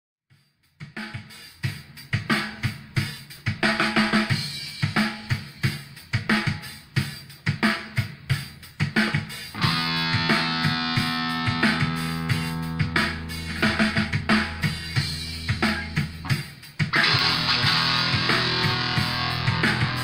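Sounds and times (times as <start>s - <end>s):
drum kit beat: 0.3s - 20.0s
guitar: 9.0s - 20.0s.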